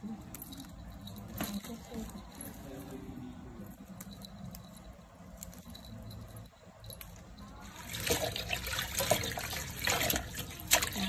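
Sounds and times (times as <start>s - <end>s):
hands splashing water in bowl: 7.8s - 11.0s.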